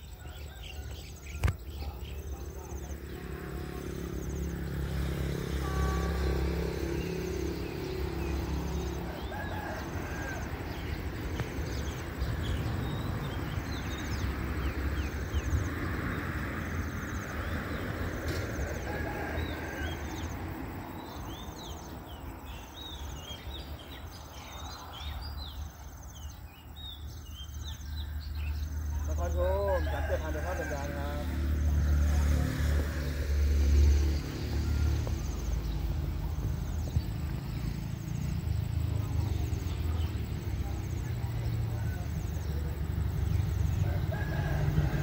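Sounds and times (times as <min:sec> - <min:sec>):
birds chirping and calling: 0:00.0 - 0:04.9.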